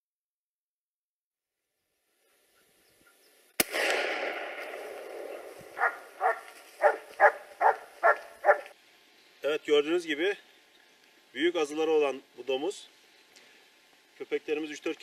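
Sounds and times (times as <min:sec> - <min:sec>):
gunshot echoing: 0:03.6 - 0:06.4
dog barking: 0:05.7 - 0:08.7.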